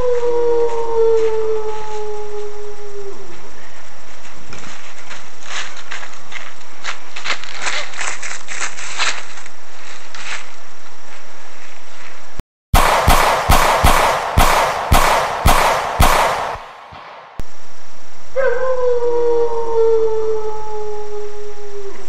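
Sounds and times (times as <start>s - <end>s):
long wolf-like howl: 0.0s - 3.4s, 18.4s - 22.0s
gunshots volley: 12.8s - 17.4s.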